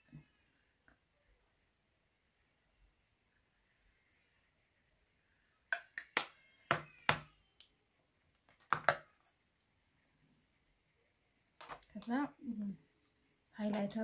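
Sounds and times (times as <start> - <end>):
make-up cases clicking and knocking: 8.4 - 9.1.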